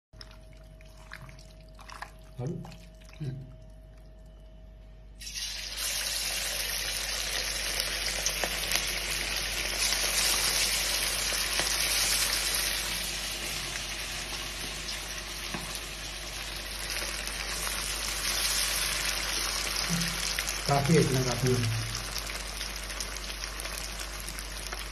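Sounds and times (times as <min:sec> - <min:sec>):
chicken deep-frying in oil: 0:05.1 - 0:24.9.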